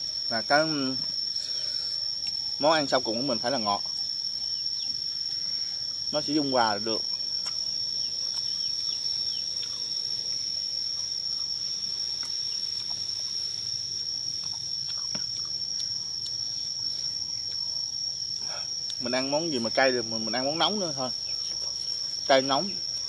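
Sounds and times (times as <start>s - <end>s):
insects droning: 0.0s - 23.0s
person chewing fruit: 7.4s - 8.7s, 9.5s - 9.9s, 12.0s - 13.3s, 14.2s - 19.0s.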